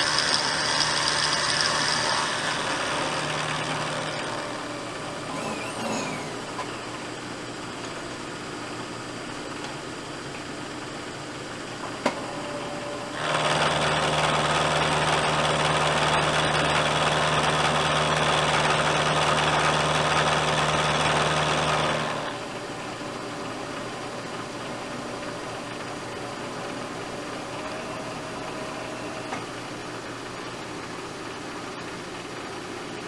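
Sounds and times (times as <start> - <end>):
milling machine cutting metal: 0.0 - 7.1.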